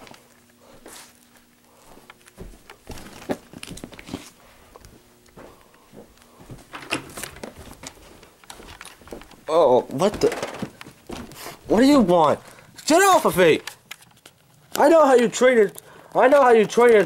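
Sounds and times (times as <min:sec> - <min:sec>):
toy figures handling noise: 0:12.4 - 0:17.0.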